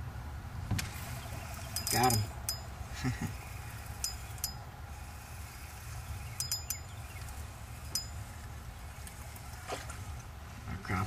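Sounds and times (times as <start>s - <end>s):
low steady rumble: 0.0s - 11.0s.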